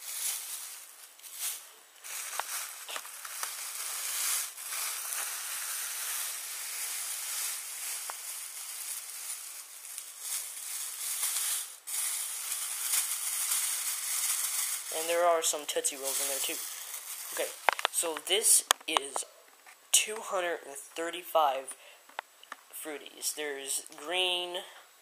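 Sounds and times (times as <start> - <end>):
plastic bag crinkling: 0.0 - 19.2
candy wrappers rustling: 0.0 - 20.5.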